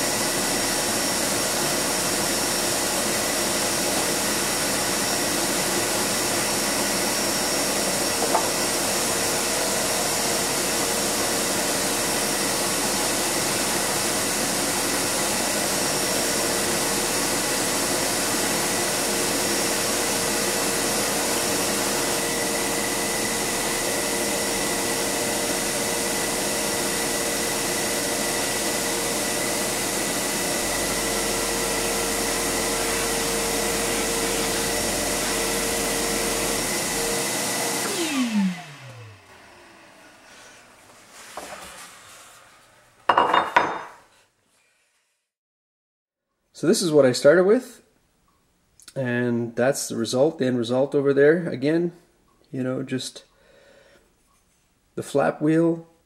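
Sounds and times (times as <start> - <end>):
bench grinder buffing metal: 0.0 - 39.0.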